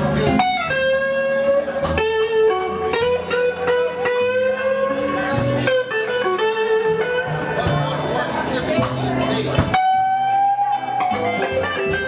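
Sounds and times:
bass line: 0:00.0 - 0:12.0
electric guitar lead: 0:00.0 - 0:12.0.

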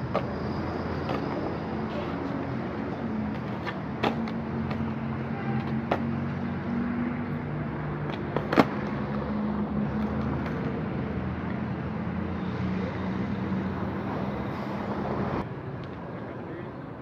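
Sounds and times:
skateboard wheels rolling on concrete: 0:00.0 - 0:12.2, 0:12.8 - 0:17.0.

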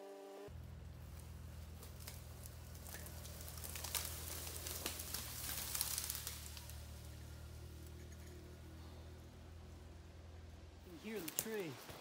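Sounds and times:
twigs and branches snapping: 0:01.0 - 0:07.9, 0:11.0 - 0:12.0.

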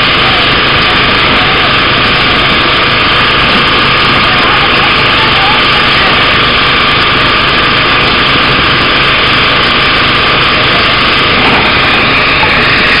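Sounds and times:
boat engine running: 0:00.0 - 0:13.0
water spraying hiss: 0:08.4 - 0:13.0.

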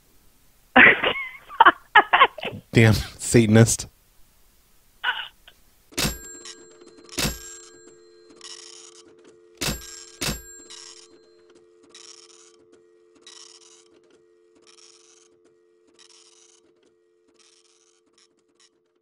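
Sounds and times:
telephone click: 0:06.0 - 0:14.8
steady telephone line tone: 0:06.0 - 0:19.0.

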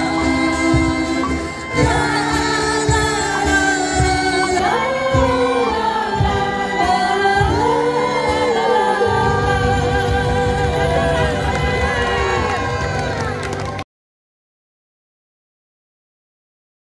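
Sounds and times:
woman singing: 0:00.0 - 0:13.4
acoustic guitar: 0:00.0 - 0:13.8
violin: 0:00.0 - 0:13.8.

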